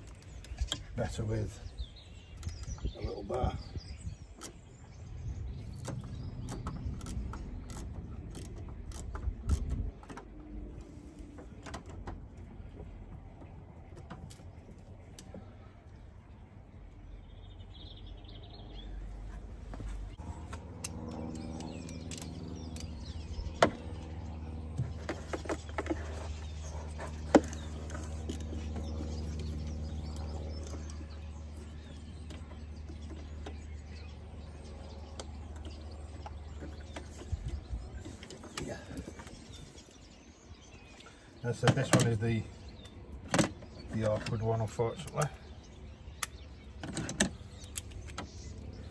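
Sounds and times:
bird chirping: 0.0s - 11.0s, 12.6s - 48.9s
sharp clicks: 46.1s - 48.4s.

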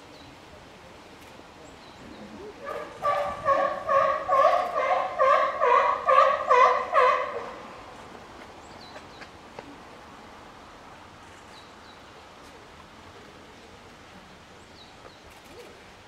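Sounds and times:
loud animal calls: 2.6s - 7.6s.

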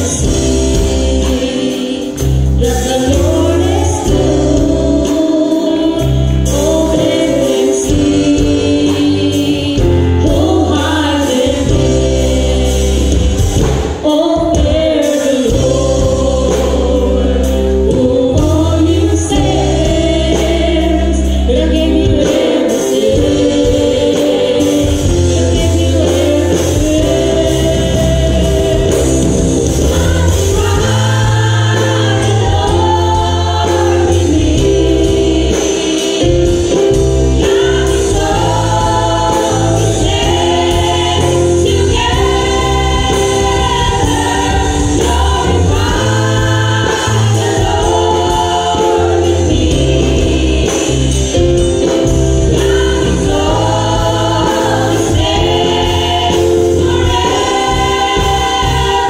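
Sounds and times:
instrumental accompaniment with bass: 0.0s - 59.0s
women's choir singing gospel: 0.0s - 59.0s.

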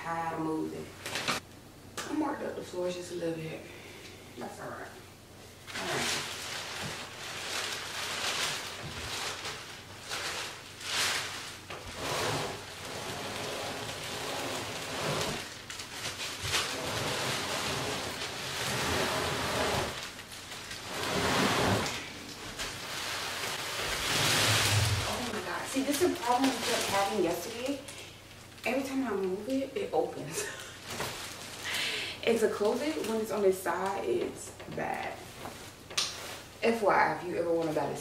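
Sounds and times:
plastic wrap crinkling: 5.6s - 36.8s
furniture sliding on floor: 11.8s - 15.5s, 16.6s - 20.0s, 20.8s - 22.1s, 23.2s - 25.3s.

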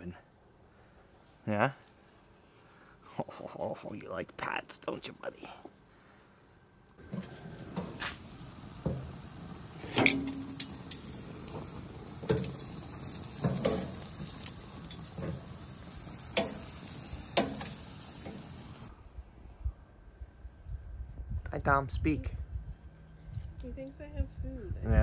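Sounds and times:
food sizzling: 7.0s - 18.9s.

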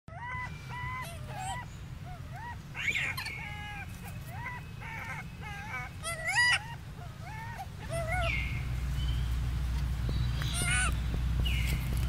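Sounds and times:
monkeys calling: 0.1s - 9.4s, 10.1s - 12.0s
steady low rumble: 0.6s - 12.0s
monkey shriek: 2.2s - 8.4s, 10.4s - 10.9s.

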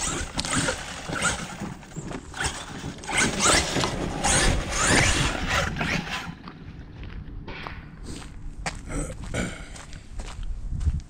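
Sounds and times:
electric motor whining: 0.0s - 6.4s
tyres scrabbling in soil: 0.0s - 6.6s.

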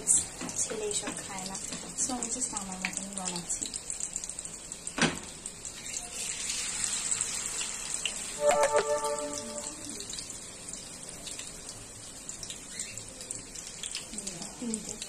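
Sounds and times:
oil sizzling in a pan: 0.0s - 15.0s
brief pitched tone: 8.4s - 10.0s.

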